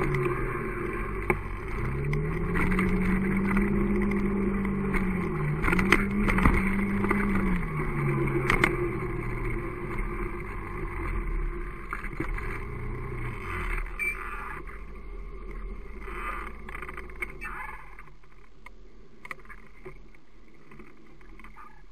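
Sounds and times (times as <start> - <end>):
motorcycle engine running: 0.0 - 17.3.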